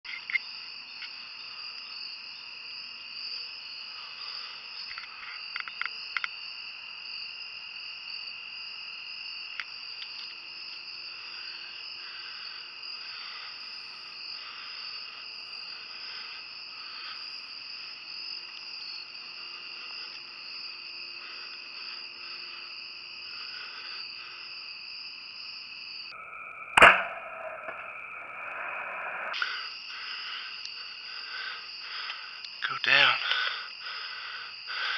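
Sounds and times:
high-pitched insect chorus: 0:00.1 - 0:34.9
bow string snap: 0:26.7 - 0:29.4.

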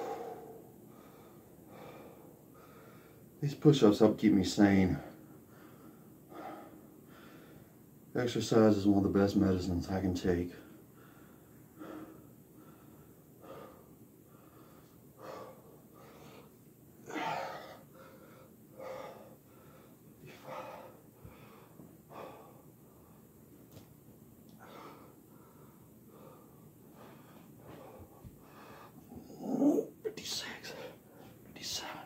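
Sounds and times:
man breathing heavily: 0:00.0 - 0:03.4, 0:05.1 - 0:07.8, 0:10.7 - 0:23.8, 0:24.5 - 0:29.3.

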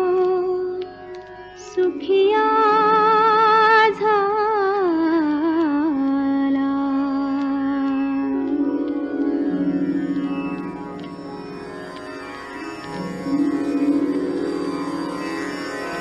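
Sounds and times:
woman singing classical style: 0:01.6 - 0:08.2
steady low drone: 0:08.3 - 0:16.0.

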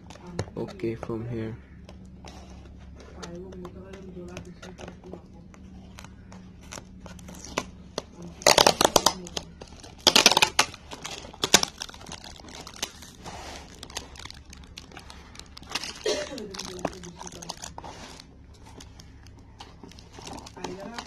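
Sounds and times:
plastic and tape crinkling: 0:00.0 - 0:21.0.

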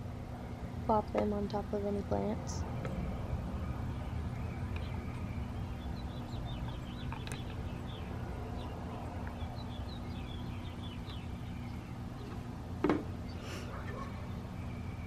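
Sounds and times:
small birds chirping: 0:00.0 - 0:15.0
steady low hum: 0:00.0 - 0:15.0.

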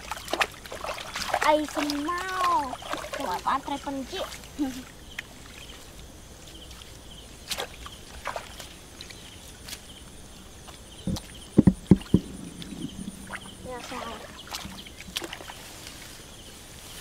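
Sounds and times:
dull thumps: 0:11.0 - 0:13.4.

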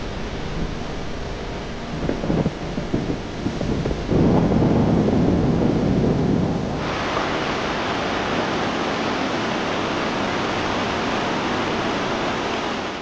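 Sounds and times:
wind rumble on microphone: 0:00.0 - 0:13.0
stream rushing over rocks: 0:06.8 - 0:13.0.

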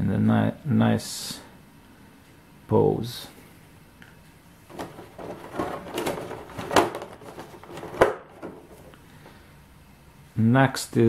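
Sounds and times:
plastic tray rustling and crackling: 0:04.7 - 0:09.3.

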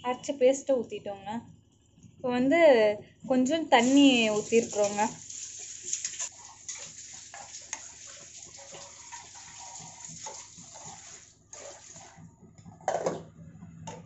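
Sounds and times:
food bubbling and popping in pan: 0:04.7 - 0:12.2.

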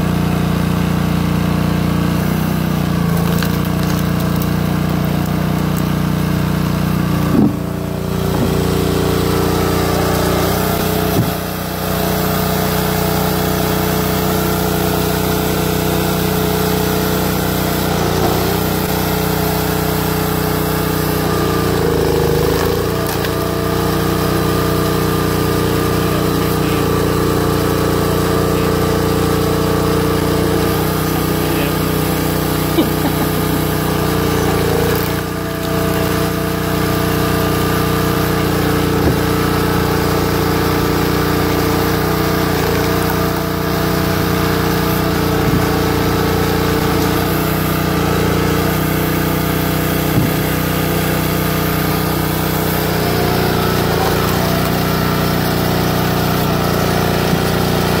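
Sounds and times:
log splitter engine running: 0:00.0 - 0:58.0
sharp knock of wood cracking: 0:50.1 - 0:50.5.

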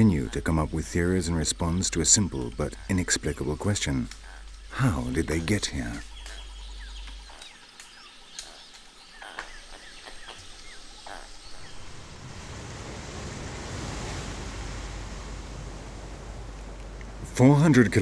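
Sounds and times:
birds chirping: 0:00.0 - 0:18.0
surf breaking on beach: 0:11.7 - 0:18.0.

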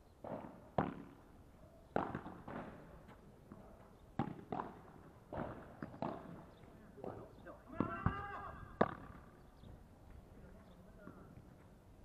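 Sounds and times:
ball bouncing on court: 0:00.2 - 0:01.2, 0:01.9 - 0:02.9, 0:04.2 - 0:09.3
ball struck by rackets: 0:00.2 - 0:01.3, 0:01.9 - 0:02.9, 0:04.2 - 0:09.4.

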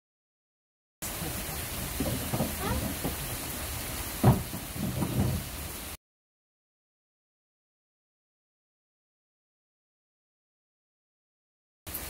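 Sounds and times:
rain hissing: 0:01.0 - 0:06.0
low thuds: 0:01.7 - 0:05.8.

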